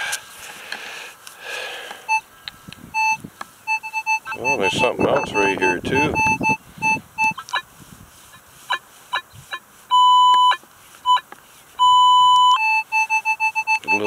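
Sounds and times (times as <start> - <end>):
metal detector tones: 2.9 - 7.6, 9.9 - 14.0.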